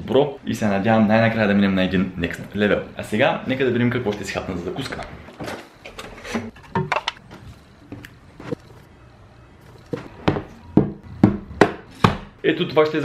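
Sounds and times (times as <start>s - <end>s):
food containers knocking and clicking: 5.4s - 8.6s.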